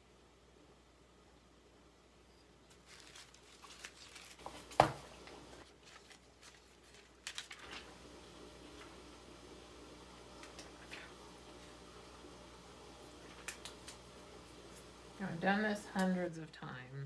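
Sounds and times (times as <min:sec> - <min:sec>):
cellophane crinkling: 0:02.7 - 0:08.0.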